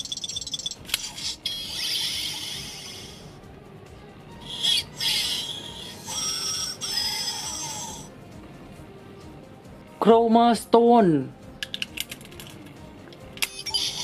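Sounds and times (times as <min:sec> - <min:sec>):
toy hissing burst: 0:01.0 - 0:03.2, 0:04.5 - 0:08.1.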